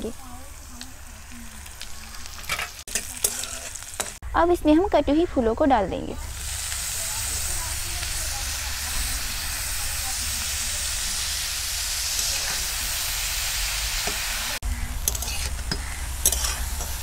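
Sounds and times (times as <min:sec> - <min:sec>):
food sizzling in hot oil: 0:00.0 - 0:04.2, 0:06.2 - 0:17.0
steel spatula scraping pan: 0:15.0 - 0:17.0.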